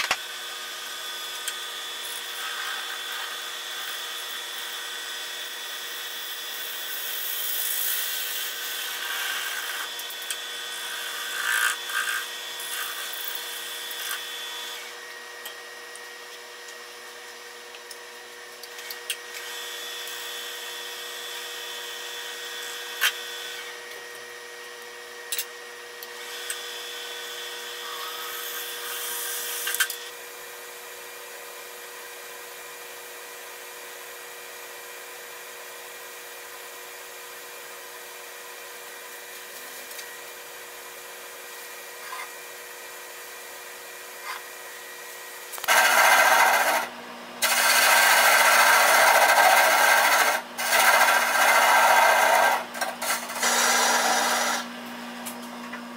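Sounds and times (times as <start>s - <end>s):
lathe motor whine: 0.0s - 30.7s, 41.6s - 55.9s
chisel scraping wood: 45.7s - 54.7s.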